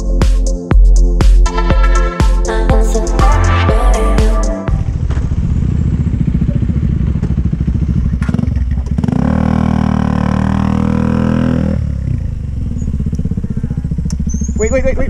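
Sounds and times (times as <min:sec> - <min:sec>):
motorcycle engine revving: 0:04.7 - 0:15.0.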